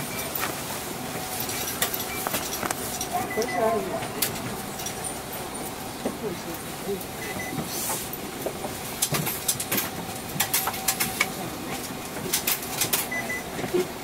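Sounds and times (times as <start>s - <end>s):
bus interior hum: 0.0s - 14.0s
sharp clicks and rattles: 1.4s - 3.4s.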